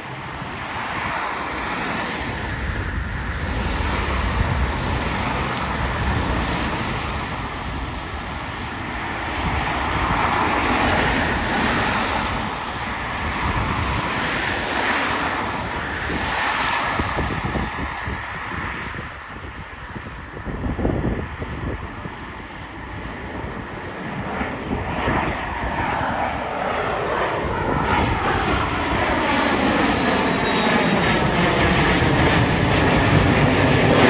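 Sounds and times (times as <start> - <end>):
jet engines rumbling: 0.0 - 34.0
wind buffeting microphone: 0.0 - 34.0
tyres hissing on wet road: 11.5 - 12.8.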